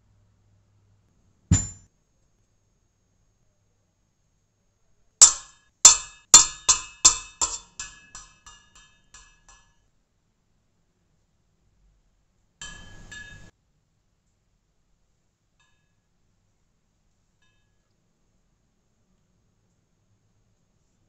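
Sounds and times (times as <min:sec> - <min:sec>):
metal spoon clinking on pot: 0:05.2 - 0:09.8, 0:12.6 - 0:13.5.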